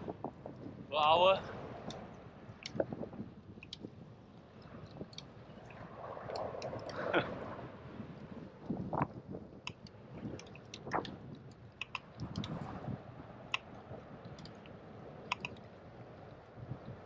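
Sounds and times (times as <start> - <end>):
wind and road rumble: 0.0 - 17.0
bicycle clicks and rattles: 9.6 - 12.6.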